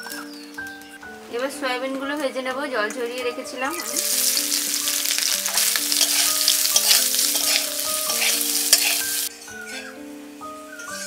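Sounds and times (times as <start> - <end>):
food sizzling in hot oil: 3.7 - 9.3
spatula stirring: 3.8 - 9.3.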